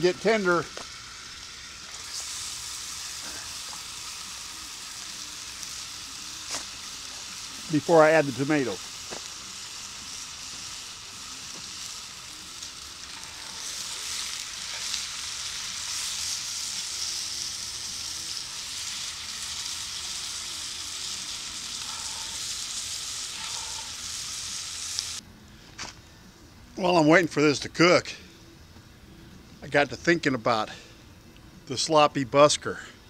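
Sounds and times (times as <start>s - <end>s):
food sizzling in a pot: 0.0s - 25.2s.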